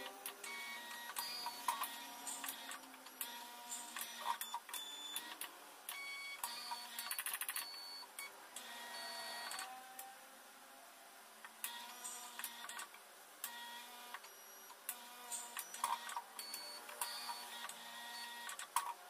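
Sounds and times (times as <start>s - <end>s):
analyzer motors whirring: 0.0s - 10.1s.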